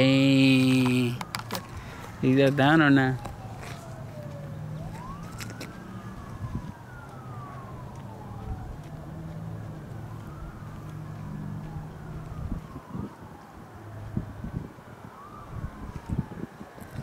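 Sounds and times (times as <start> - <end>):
distant siren wailing: 0.0 - 17.0
low engine hum: 3.2 - 14.6.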